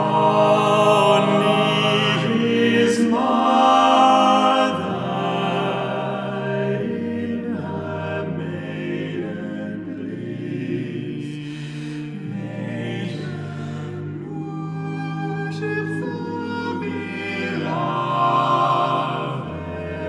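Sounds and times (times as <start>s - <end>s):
male a cappella group singing: 0.0s - 20.0s.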